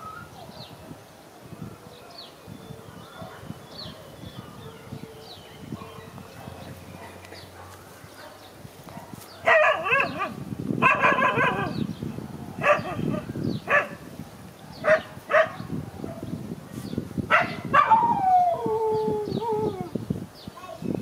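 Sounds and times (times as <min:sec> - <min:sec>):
dog barking: 0:05.8 - 0:11.8, 0:12.6 - 0:14.0, 0:14.8 - 0:16.3, 0:17.3 - 0:18.1.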